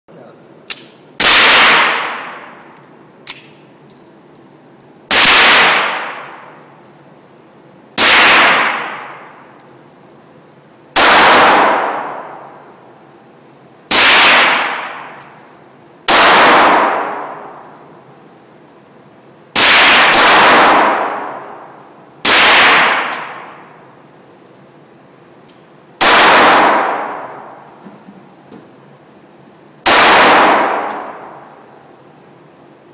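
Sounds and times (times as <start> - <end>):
pistol shots echoing indoors: 0.7 - 3.5, 5.1 - 6.6, 8.0 - 9.7, 10.9 - 12.7, 13.9 - 15.4, 16.0 - 17.8, 19.5 - 24.0, 25.9 - 27.7, 29.8 - 31.7.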